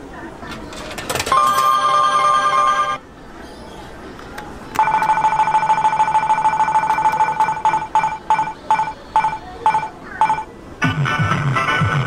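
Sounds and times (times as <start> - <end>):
vending machine electronic beeps: 1.3 - 3.0, 4.8 - 10.5.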